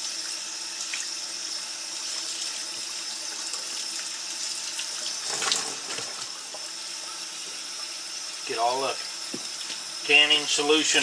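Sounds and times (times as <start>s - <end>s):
tap water running into sink: 0.0s - 11.0s
water splashing over hide: 5.1s - 6.3s.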